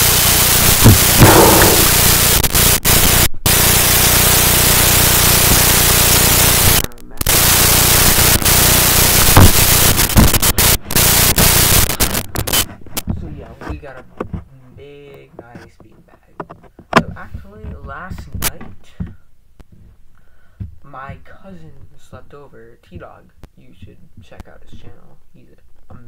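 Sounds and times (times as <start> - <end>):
loud static hiss: 0.0 - 13.8.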